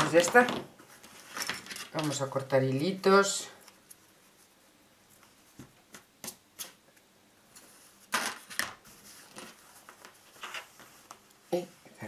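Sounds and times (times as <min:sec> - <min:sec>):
rustle and clatter: 0:07.6 - 0:11.4.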